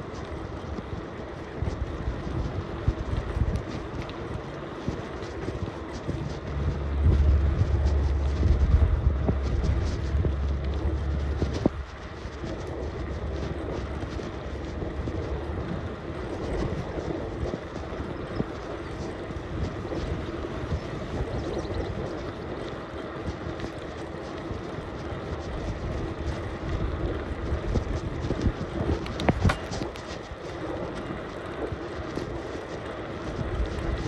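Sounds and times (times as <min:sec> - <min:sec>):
bicycle rolling: 0:00.0 - 0:34.0
brief low rumble: 0:06.3 - 0:15.0.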